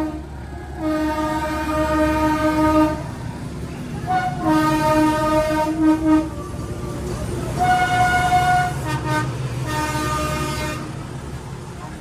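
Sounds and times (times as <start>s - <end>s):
locomotive horn blasts: 0.0s - 3.1s, 4.0s - 6.4s, 7.6s - 11.0s
low engine rumble: 0.0s - 12.0s.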